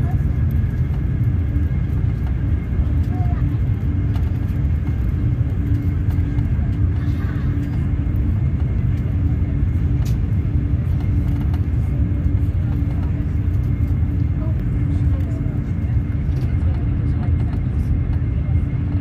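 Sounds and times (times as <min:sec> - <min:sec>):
faint constant hum: 0:00.0 - 0:19.0
train interior rumble: 0:00.0 - 0:19.0.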